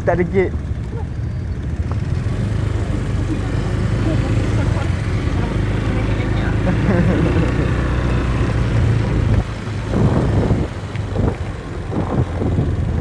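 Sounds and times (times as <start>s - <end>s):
scooter engine running: 0.0s - 13.0s
wind buffeting microphone: 7.2s - 13.0s.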